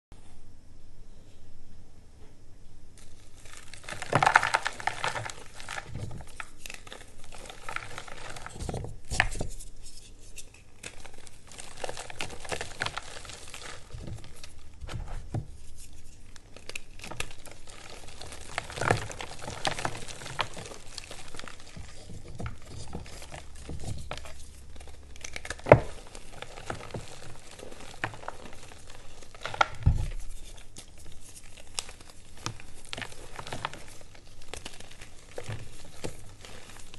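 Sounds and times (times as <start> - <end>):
chalk pieces cracking: 3.0 - 36.9.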